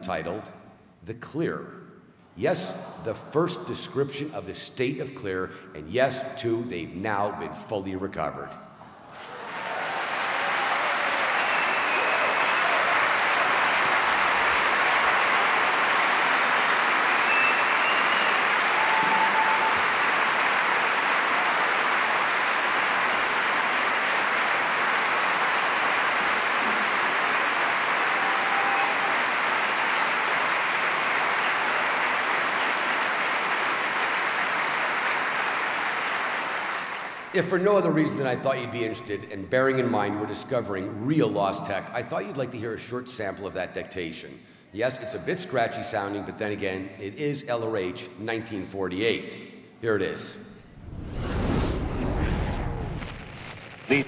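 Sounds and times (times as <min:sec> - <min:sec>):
crowd applauding: 0:09.0 - 0:37.4.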